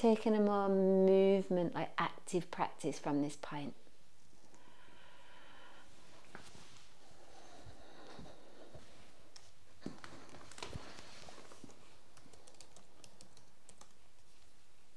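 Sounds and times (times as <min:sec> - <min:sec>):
light keyboard clicks: 0:11.6 - 0:14.5.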